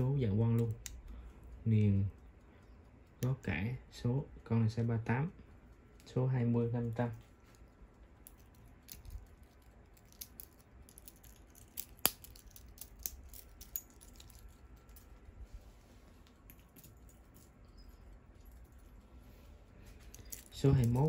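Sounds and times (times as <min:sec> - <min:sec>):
wristwatches clicking and knocking: 0:00.0 - 0:03.5, 0:06.8 - 0:15.1.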